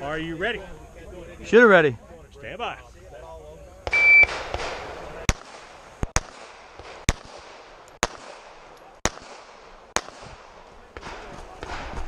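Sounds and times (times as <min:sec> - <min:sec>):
shot timer beep: 0:03.9 - 0:04.3
pistol shots: 0:03.9 - 0:12.0.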